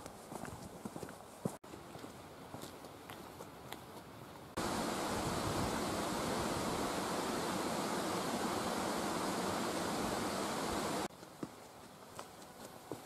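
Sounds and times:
steady rushing noise: 4.6 - 11.1.

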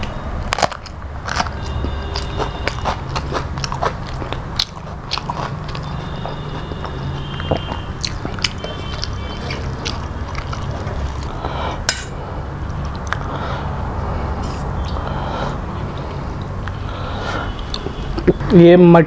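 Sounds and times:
chewing food: 0.0 - 11.9, 12.6 - 13.4
mouth clicks and smacks: 0.0 - 11.9, 12.6 - 13.5, 14.4 - 18.4
steady low hum: 0.0 - 18.5.

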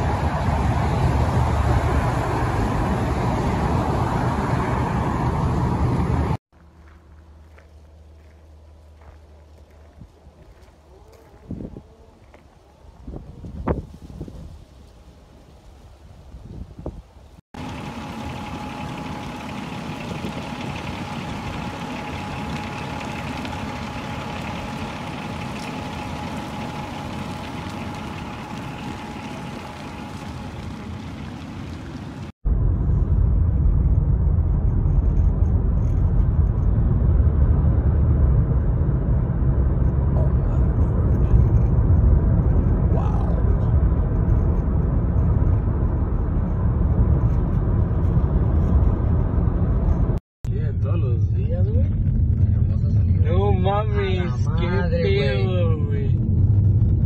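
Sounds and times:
freeway traffic noise: 0.0 - 14.0, 16.9 - 57.0
wind buffeting microphone: 9.9 - 14.9, 15.9 - 17.3.

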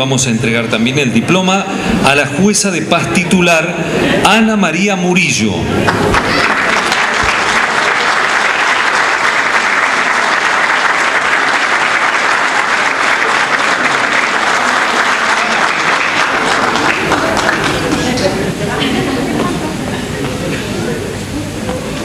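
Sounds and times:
audience applauding: 5.8 - 19.3.

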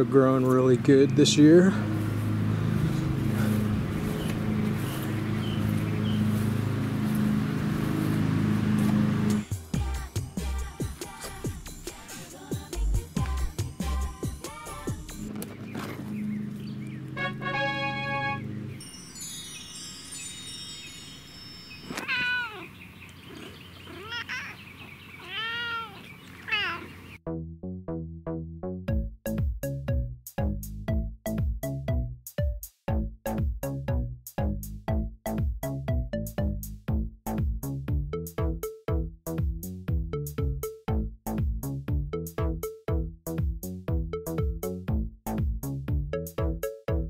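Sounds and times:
cat meowing: 21.9 - 22.7, 23.9 - 24.6, 25.2 - 26.9.

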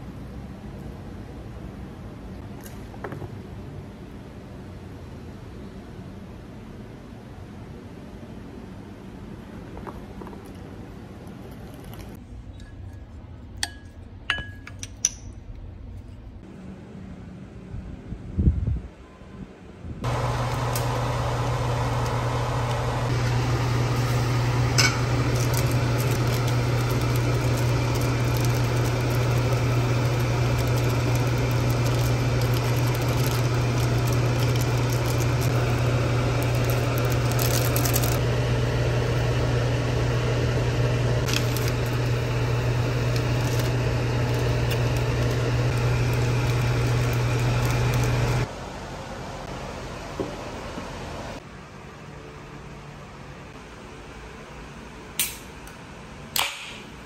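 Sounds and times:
kitchen appliance humming: 20.0 - 51.4.

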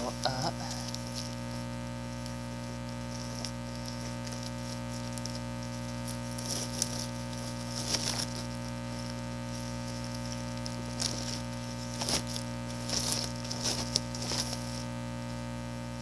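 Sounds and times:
electrical hum: 0.0 - 16.0
packaging rustling and scraping: 2.1 - 14.9.

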